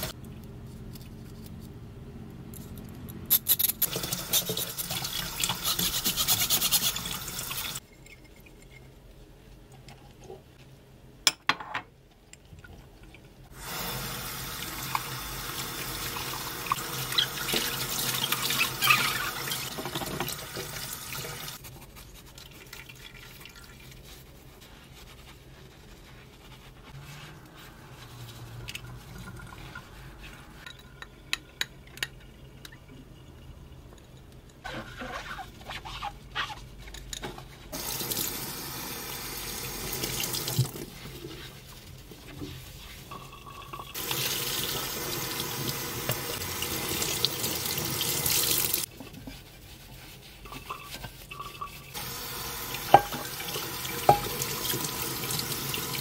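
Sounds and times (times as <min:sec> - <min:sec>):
sponge scrubbing glass bowl: 0:04.2 - 0:08.7, 0:16.0 - 0:20.0, 0:21.5 - 0:30.7, 0:34.6 - 0:36.7, 0:48.8 - 0:56.0
tap running into sink: 0:52.8 - 0:54.8.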